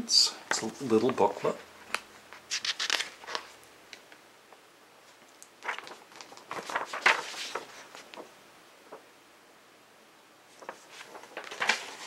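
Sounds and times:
paper pages rustling: 0.5 - 3.6, 5.0 - 9.1, 10.5 - 12.0
paper snap: 1.9 - 3.5, 5.3 - 8.3, 10.6 - 12.0.

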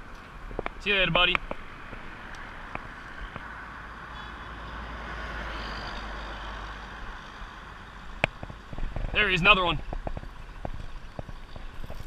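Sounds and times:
road traffic: 0.0 - 12.0
vehicle passing: 0.8 - 8.2.

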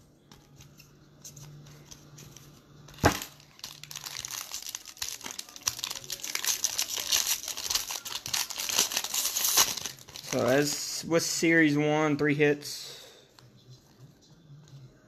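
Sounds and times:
foil wrapper crinkling: 2.9 - 10.8.

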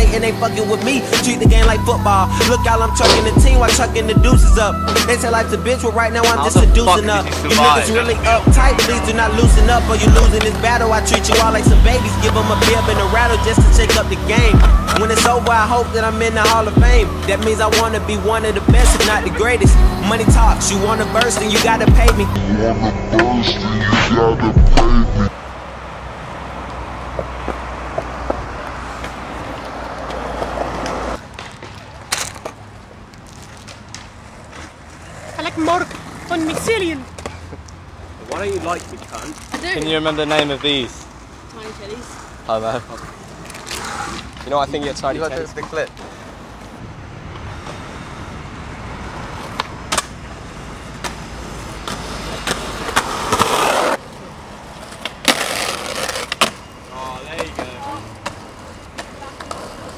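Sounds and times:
skateboard wheels rolling on concrete: 0.0 - 22.4, 25.3 - 59.9
skateboard scraping: 0.2 - 22.4, 27.0 - 59.9
skateboard clacks: 8.6 - 12.8, 13.6 - 17.0.

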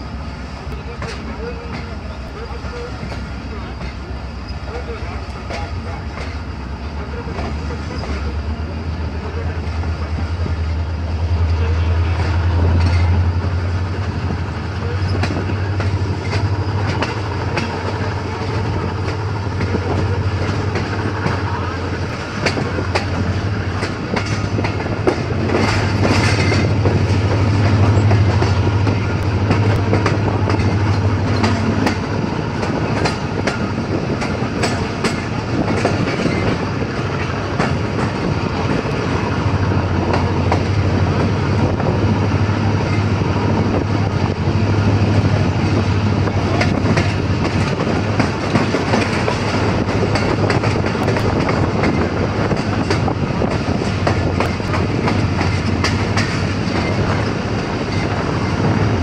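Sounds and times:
train wheels rumbling on rails: 0.0 - 59.0
wheels clicking over rail joints: 0.6 - 8.4, 11.4 - 59.0.

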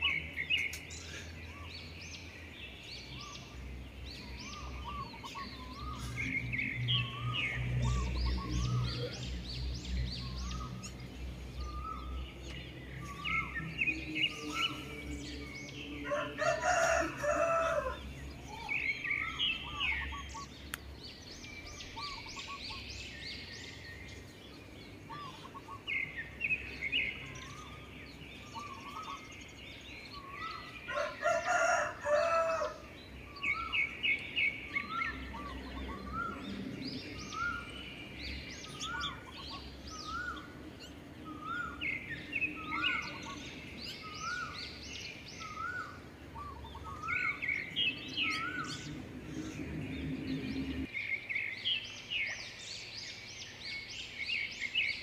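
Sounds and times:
wild birds chirping and trilling: 0.0 - 55.0
rooster crowing: 16.0 - 18.1, 30.9 - 32.9.

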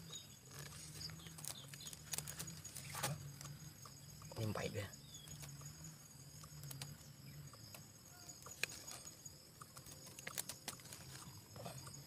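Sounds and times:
cord clicks and rustles in leaves: 0.5 - 3.6, 9.8 - 11.4.

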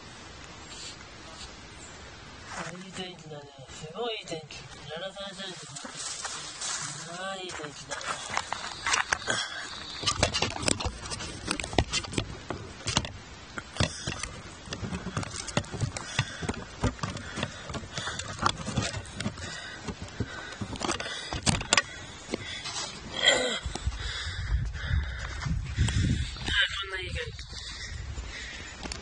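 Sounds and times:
microphone handling rustling: 2.4 - 29.0.

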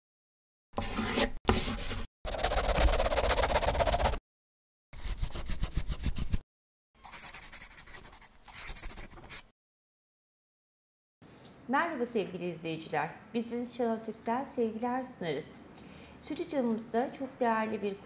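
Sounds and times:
pen scribbling on paper: 0.8 - 4.2, 5.0 - 6.4, 7.0 - 9.5.

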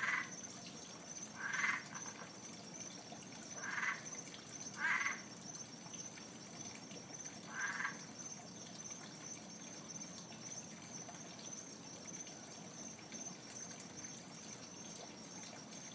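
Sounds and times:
frog croaking: 0.0 - 0.4, 1.3 - 2.4, 3.5 - 5.4, 7.4 - 8.3.

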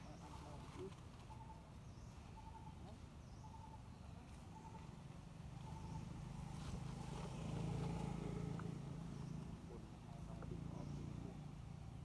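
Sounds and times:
vehicle engine running: 5.5 - 12.0.

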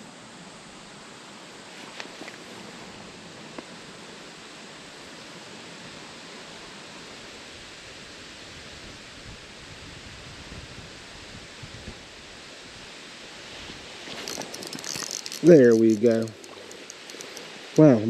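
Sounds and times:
flowing creek water: 0.1 - 9.0, 12.1 - 18.0
fishing reel clicks: 14.1 - 18.0.

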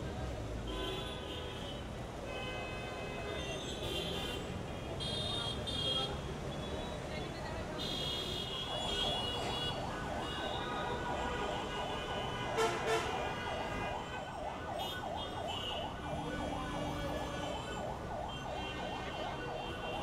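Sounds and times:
road traffic noise: 0.0 - 20.0
car horns honking: 7.9 - 14.2
siren yelping: 13.2 - 20.0.

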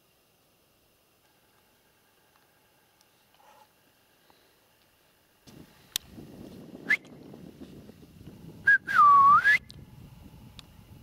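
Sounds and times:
person whistling: 8.7 - 9.7.

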